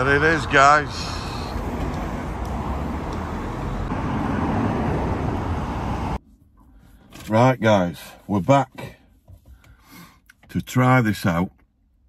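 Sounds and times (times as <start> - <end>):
road vehicle rumble: 0.0 - 10.4.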